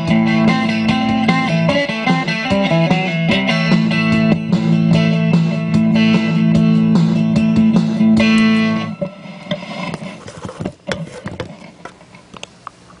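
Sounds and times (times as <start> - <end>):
electric guitar chord: 0.0 - 9.1.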